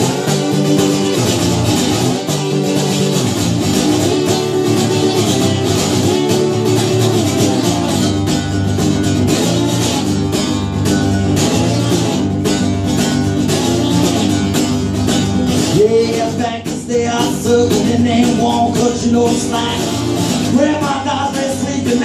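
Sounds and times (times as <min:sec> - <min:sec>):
acoustic guitar strumming: 0:00.0 - 0:22.0
wordless vocal: 0:15.7 - 0:22.0.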